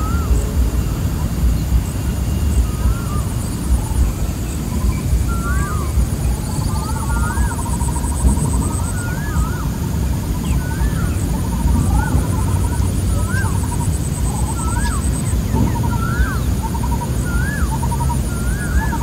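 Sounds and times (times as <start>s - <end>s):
birds whistling: 0.0s - 19.0s
fast pulsing bird trill: 0.0s - 19.0s
loud low rumble: 0.0s - 19.0s.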